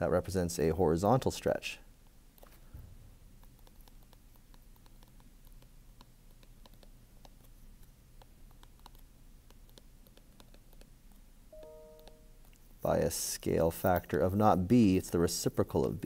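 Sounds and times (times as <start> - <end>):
low steady hum: 0.0 - 16.0
stylus tapping on glass screen: 11.6 - 12.6.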